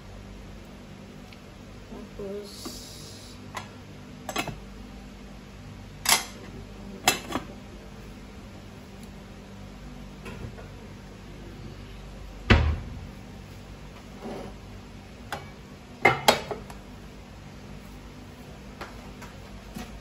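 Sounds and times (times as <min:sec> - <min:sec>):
steady low hum: 0:00.0 - 0:20.0
heavy thud: 0:12.5 - 0:13.2.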